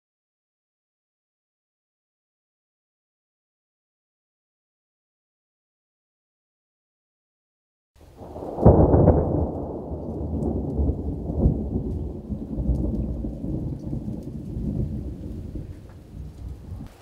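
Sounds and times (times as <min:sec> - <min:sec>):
thunder rumbling: 0:08.0 - 0:17.0.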